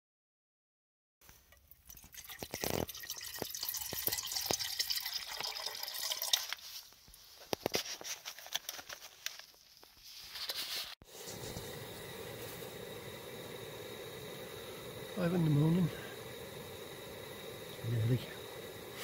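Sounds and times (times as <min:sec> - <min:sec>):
water pouring into metal pot: 0:01.4 - 0:06.6
gas stove hissing: 0:10.7 - 0:19.0.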